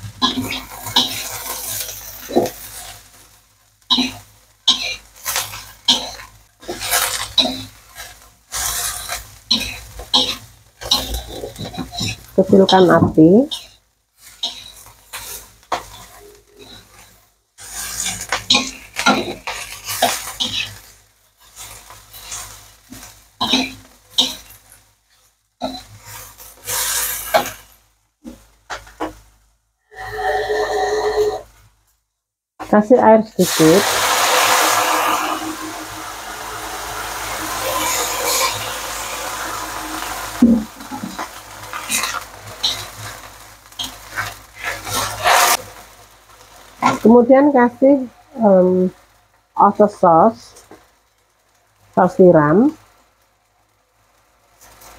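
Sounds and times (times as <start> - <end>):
light sizzling: 0.0 - 54.9
metal spatula scraping a wok: 0.1 - 3.3, 3.9 - 27.7, 29.9 - 31.5, 33.4 - 45.9.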